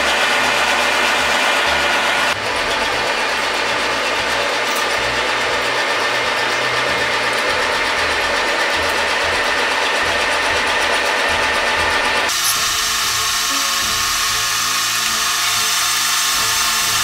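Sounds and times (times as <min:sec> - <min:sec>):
metal lathe whirring: 0:00.0 - 0:17.0
cutting tool on steel: 0:12.2 - 0:17.0.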